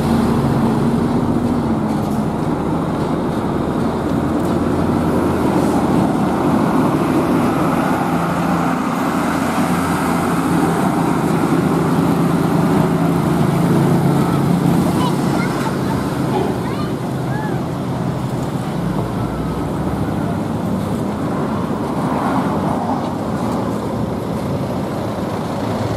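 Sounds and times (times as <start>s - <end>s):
cars and motorcycles passing: 0.0s - 25.9s
truck engine drone: 0.0s - 25.9s.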